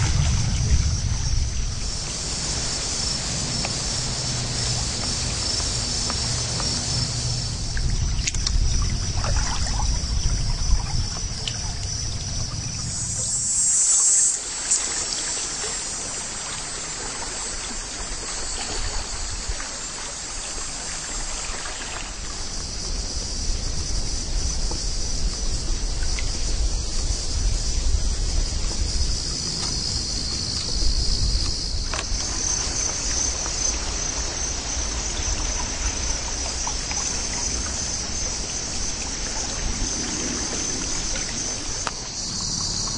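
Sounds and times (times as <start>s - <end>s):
low rumble: 0.0s - 13.7s
insects droning: 0.0s - 42.9s
water trickling and lapping: 0.0s - 42.9s.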